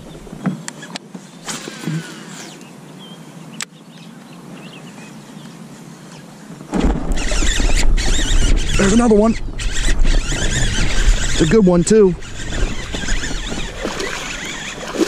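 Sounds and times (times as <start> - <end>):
birds chirping faintly: 0.0 - 15.0
low rushing wind noise: 6.3 - 15.0.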